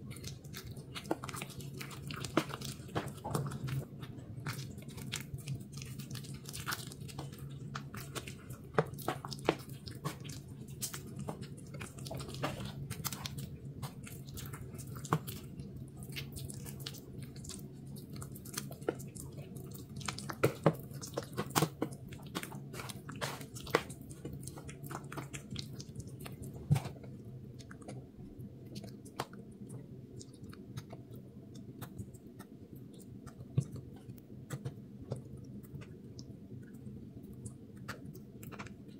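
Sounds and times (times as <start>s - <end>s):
powder crunching and crackling: 0.0s - 32.2s.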